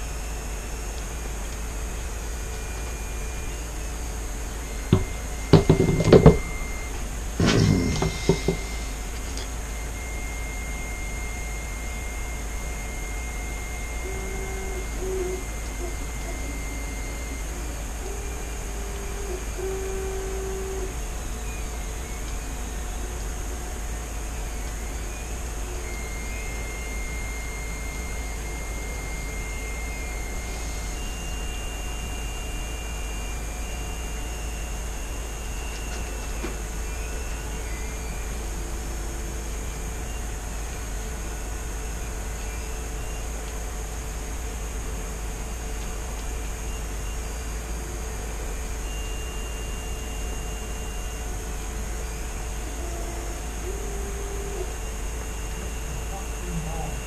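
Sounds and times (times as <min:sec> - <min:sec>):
faint thin whistling tones: 0:00.0 - 0:45.1, 0:45.9 - 0:57.0
machinery hum and hiss: 0:00.0 - 0:57.0
faint thin high tone: 0:04.6 - 0:12.1, 0:12.8 - 0:23.2.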